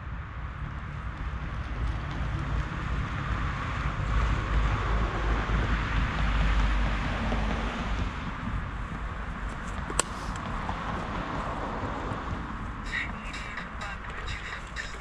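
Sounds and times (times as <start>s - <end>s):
wind rumbling on microphone: 0.0s - 15.0s
scooter tyre rolling noise: 0.5s - 15.0s.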